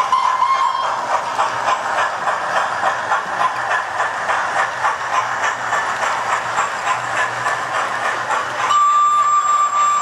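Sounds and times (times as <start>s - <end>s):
model train wheels rattling: 0.0s - 10.0s
wheels clicking over rail joints: 0.0s - 10.0s.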